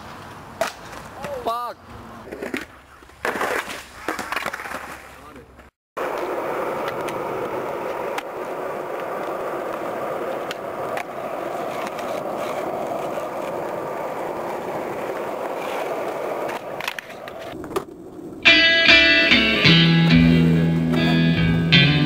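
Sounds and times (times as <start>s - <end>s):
skateboard wheels rolling on pavement: 0.0s - 22.0s
skateboard clicks and rattles: 2.2s - 18.4s.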